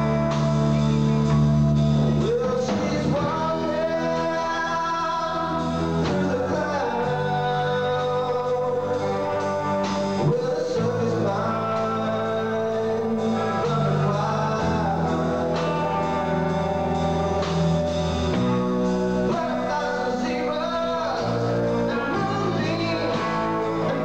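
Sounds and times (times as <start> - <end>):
bass guitar: 0.0 - 24.0
drums: 0.0 - 24.0
electric guitar: 0.0 - 24.0
man singing: 0.0 - 24.0.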